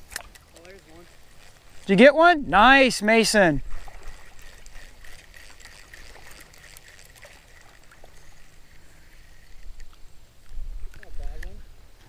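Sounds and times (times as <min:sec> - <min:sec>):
outdoor hiss: 0:07.2 - 0:12.0
wind rumbling on microphone: 0:09.4 - 0:11.8.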